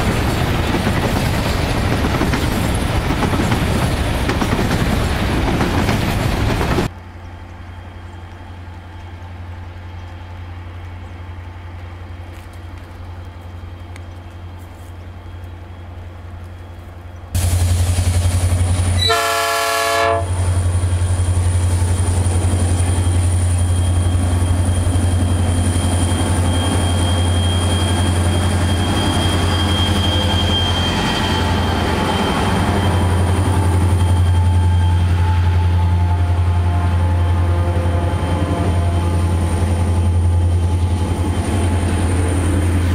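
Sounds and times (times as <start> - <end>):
diesel locomotives droning: 0.0 - 42.9
low train hum: 0.0 - 42.9
locomotive air horn: 18.9 - 20.6, 30.4 - 40.2.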